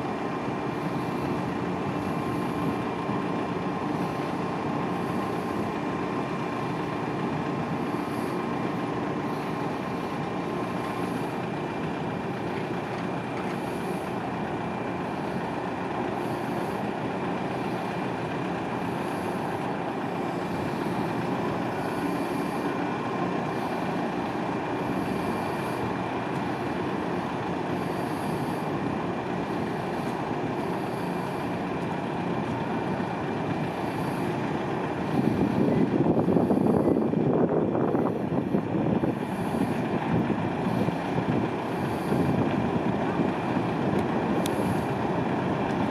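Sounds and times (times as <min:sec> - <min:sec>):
heavy engines droning: 0:00.0 - 0:45.9
thin high whine: 0:18.7 - 0:39.9.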